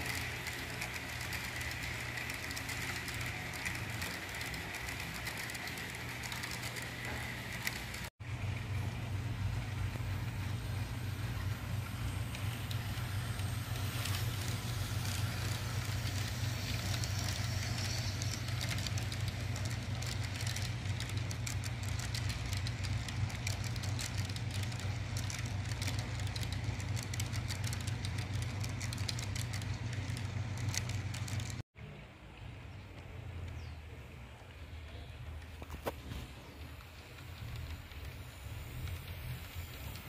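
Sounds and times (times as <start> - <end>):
metal wheels clicking over track: 0.0 - 8.1
model train hum: 0.0 - 40.0.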